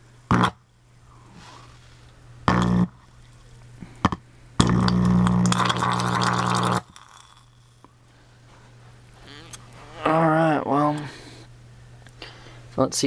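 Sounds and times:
faint low hum: 0.0s - 13.0s
electric arc buzzing crackle: 0.3s - 0.7s, 1.4s - 7.9s.

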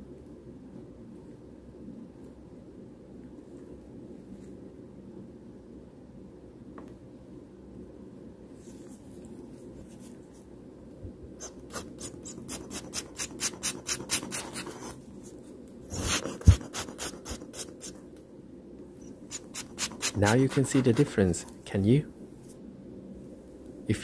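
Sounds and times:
stick scratching in watch movement: 11.4s - 15.0s, 15.9s - 18.0s, 19.0s - 21.4s.

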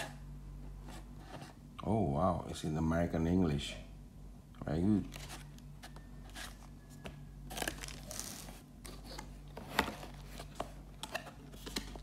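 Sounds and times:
packaging rustling and crinkling: 5.0s - 12.0s.

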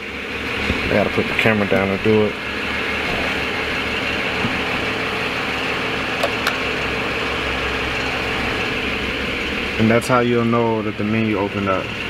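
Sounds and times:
car engine idling: 0.0s - 12.0s
ventilation fan running: 0.0s - 12.0s.

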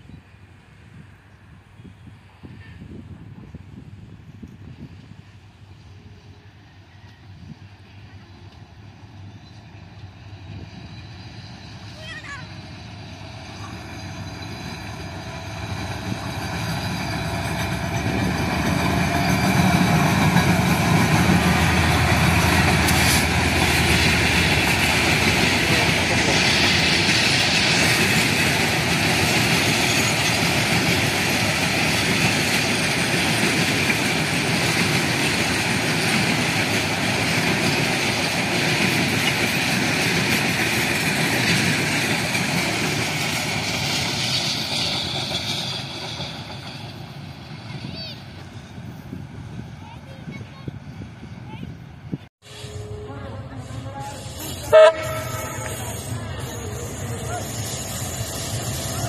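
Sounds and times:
diesel locomotive passing: 0.0s - 59.0s
train wheels rolling on rails: 0.4s - 59.0s.

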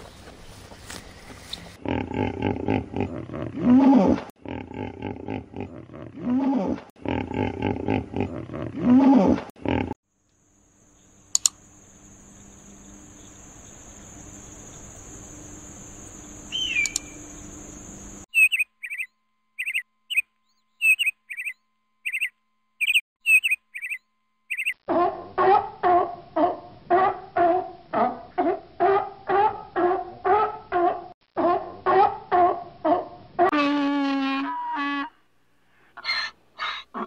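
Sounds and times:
hippos grunting and honking: 1.8s - 10.0s
bird chirping: 10.9s - 24.8s.

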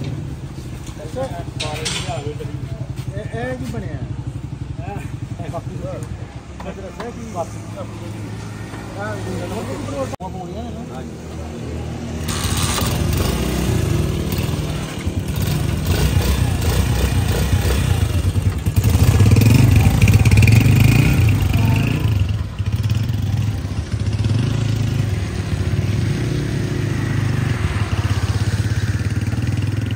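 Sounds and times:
motorcycle engine running: 2.3s - 7.0s, 12.2s - 29.9s.

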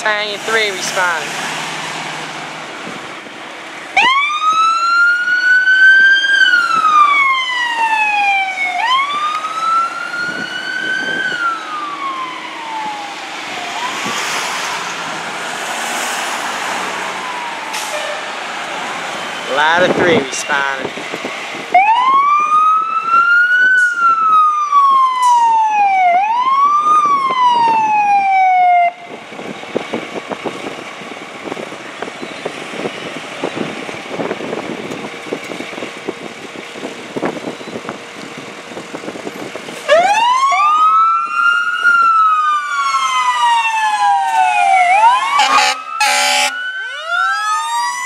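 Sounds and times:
diesel truck engine rumbling: 0.0s - 22.6s, 28.9s - 40.0s
electronic sirens wailing: 4.0s - 14.4s, 17.1s - 17.9s, 21.7s - 29.2s, 39.9s - 48.0s
air horn blasts: 45.3s - 46.6s.

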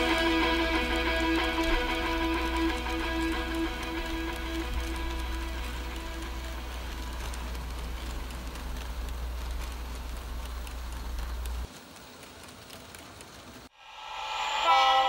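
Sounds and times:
steady low hum: 0.0s - 11.7s
model train crackling hiss: 0.0s - 15.0s.

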